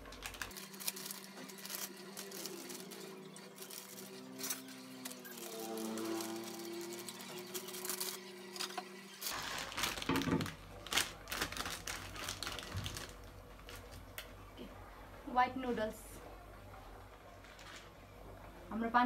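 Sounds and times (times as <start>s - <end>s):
plastic wrapper crinkling: 0.0s - 14.3s
dry noodles drawn from packet: 0.1s - 8.2s.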